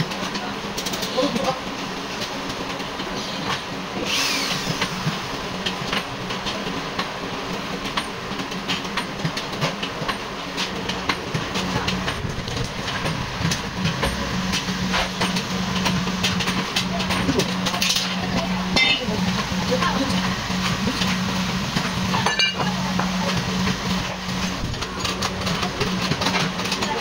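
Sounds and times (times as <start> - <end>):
steady low hum: 0.0 - 27.0
metal clicks and clanks: 24.6 - 27.0.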